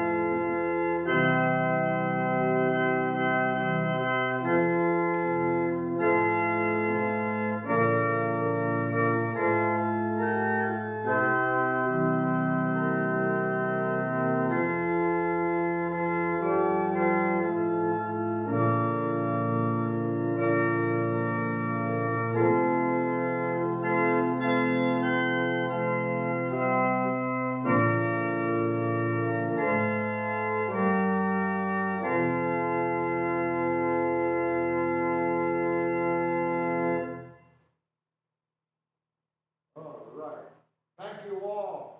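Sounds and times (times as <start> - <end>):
organ playing slow chords: 0.0 - 37.6.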